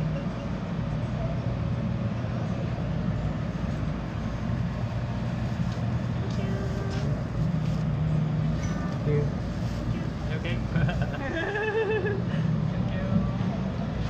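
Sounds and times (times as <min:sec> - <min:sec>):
low mechanical hum: 0:00.0 - 0:14.0
faint voices: 0:05.8 - 0:11.5.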